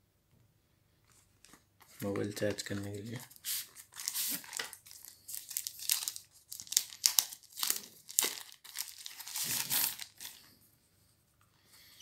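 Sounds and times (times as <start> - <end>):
wrapper crinkling and rustling: 1.4 - 10.5.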